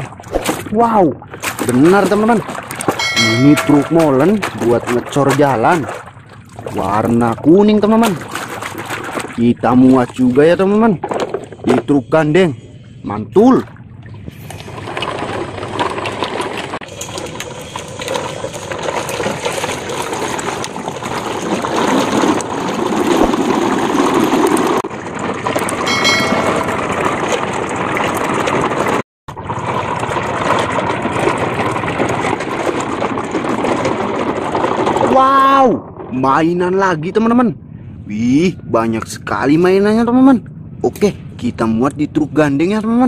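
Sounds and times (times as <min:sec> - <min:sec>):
muddy water sloshing and splashing: 0:00.0 - 0:35.2.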